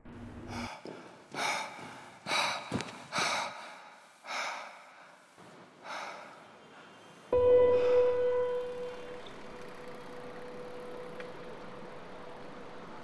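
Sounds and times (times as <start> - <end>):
person breathing hard: 0.4 - 7.0
steady musical tone: 7.4 - 12.6.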